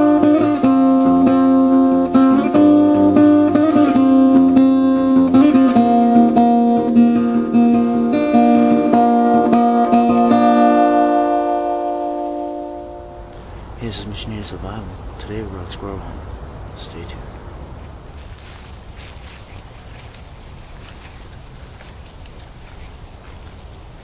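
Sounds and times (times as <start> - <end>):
plucked acoustic guitar music: 0.0 - 13.4.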